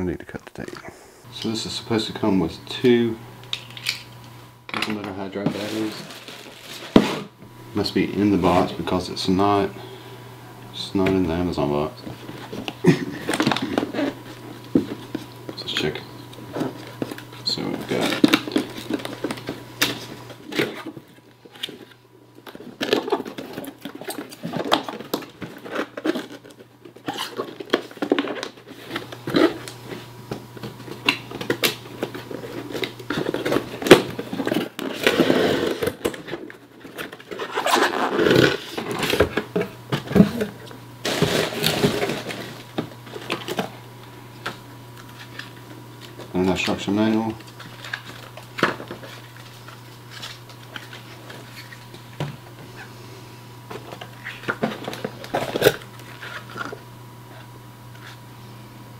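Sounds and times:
packaging rustling: 5.4s - 7.1s, 12.2s - 39.6s, 41.0s - 43.8s.

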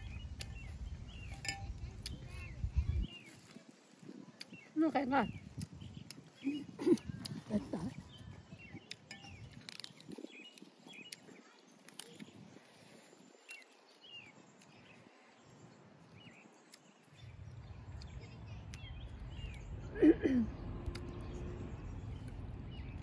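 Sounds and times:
birds chirping: 0.0s - 23.0s
low rumble: 17.3s - 23.0s.

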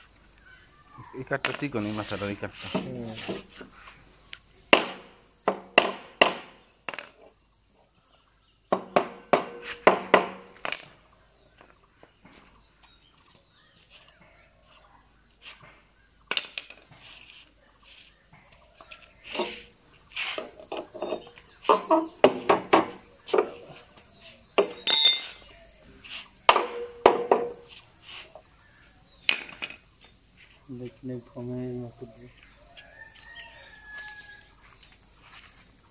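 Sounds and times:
shrill insect chorus: 0.0s - 35.9s
hammer striking wood: 4.7s - 7.0s, 8.7s - 10.4s, 21.7s - 23.6s, 26.5s - 27.6s.

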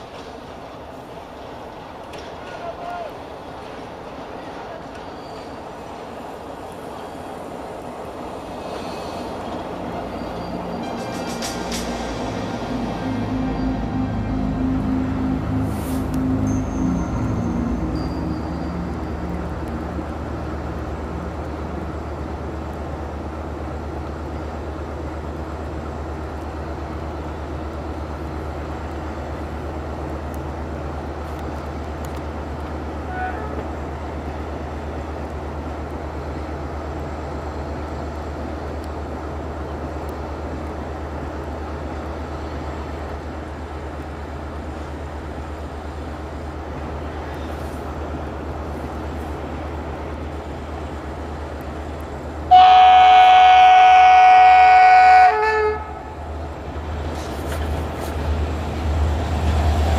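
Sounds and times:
outdoor background noise: 0.0s - 59.9s
train rumble: 0.0s - 59.9s
loud train horn: 33.0s - 33.6s, 52.5s - 56.2s.

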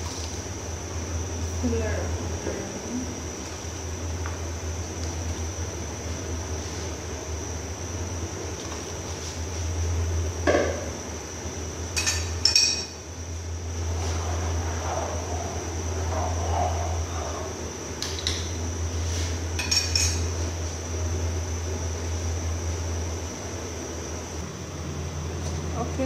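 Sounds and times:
steady low hum: 0.0s - 26.0s
metal cookware clinking: 12.0s - 12.9s.

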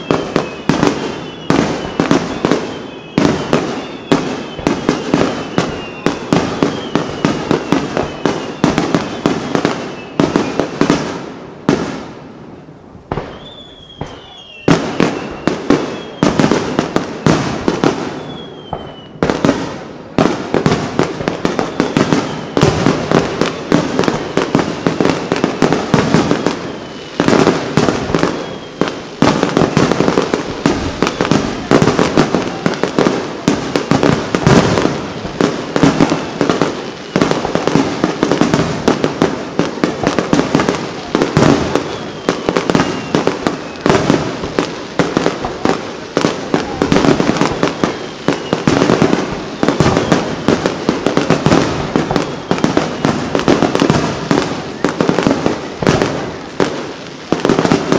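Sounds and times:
falling firework whistles: 0.0s - 12.2s, 13.1s - 57.9s
firework crackle: 0.0s - 57.9s.

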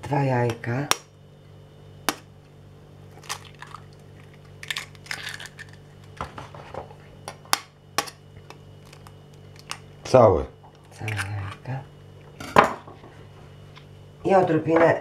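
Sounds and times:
eggs cracking on bowl: 2.0s - 6.4s, 7.2s - 10.1s, 10.7s - 12.4s.

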